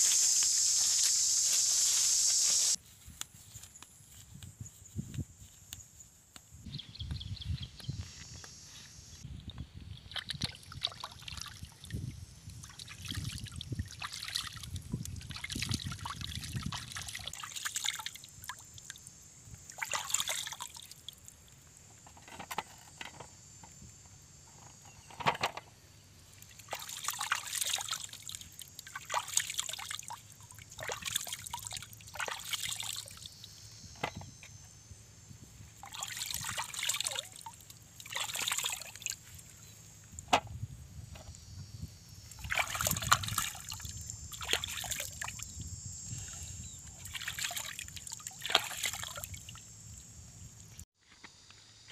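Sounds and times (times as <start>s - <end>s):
hands splashing in stream water: 35.8s - 39.2s, 42.4s - 43.8s, 47.0s - 49.4s.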